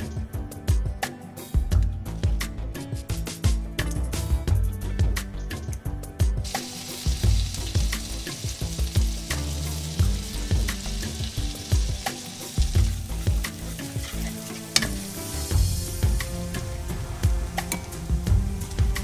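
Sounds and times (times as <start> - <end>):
oil sizzling in a frying pan: 6.4 - 19.0
sharp crackles: 6.5 - 15.5
spatula stirring pan: 6.5 - 15.5.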